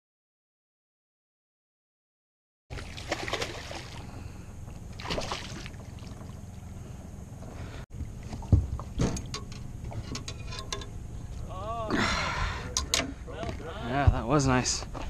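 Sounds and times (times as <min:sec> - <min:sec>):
fish splashing in water: 0:02.7 - 0:04.2, 0:04.9 - 0:06.3.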